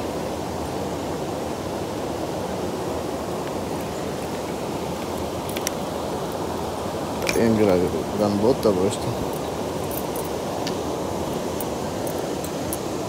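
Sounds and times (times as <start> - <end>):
river water rushing: 0.0 - 13.0
faint metal chain clicks: 5.0 - 5.8, 7.2 - 7.7, 8.6 - 10.8.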